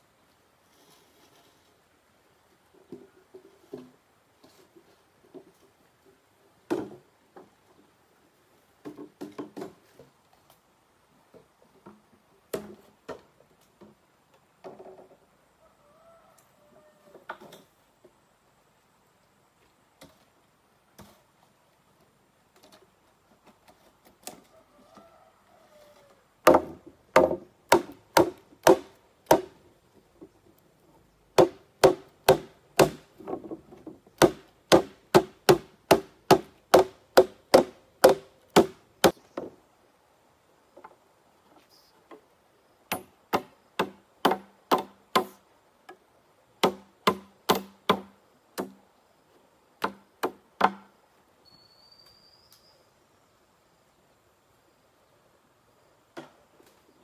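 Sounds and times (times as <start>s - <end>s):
hollow bamboo being struck: 26.4s - 29.6s, 31.4s - 39.5s.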